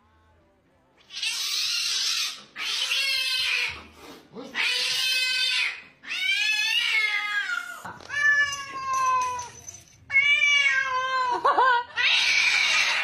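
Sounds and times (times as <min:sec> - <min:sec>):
cats yowling meows: 0:04.5 - 0:13.0.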